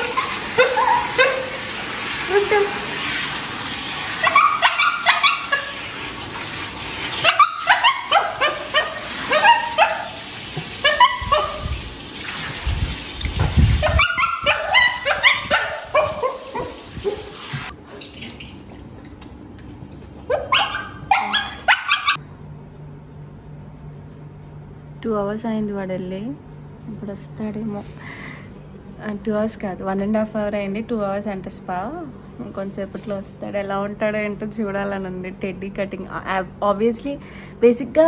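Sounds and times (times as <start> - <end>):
dog yelping and whining: 0.0 - 1.7, 4.1 - 5.8, 7.2 - 10.2, 10.8 - 11.8, 13.8 - 17.5, 20.3 - 22.2
shower spray hissing: 0.0 - 18.0.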